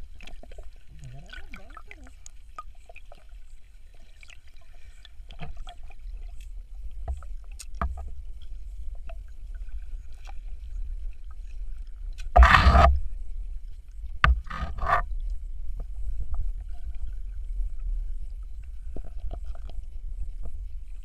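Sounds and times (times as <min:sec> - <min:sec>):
low underwater rumble: 0:00.0 - 0:21.0.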